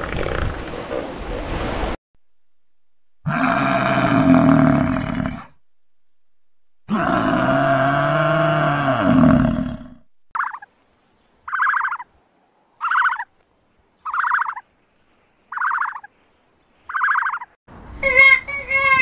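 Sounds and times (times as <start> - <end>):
water buffalo mooing: 3.2 - 5.6, 6.9 - 10.0
short rattling bird calls: 11.5 - 12.0, 12.8 - 13.3, 14.0 - 14.6, 15.5 - 16.1, 16.9 - 17.5.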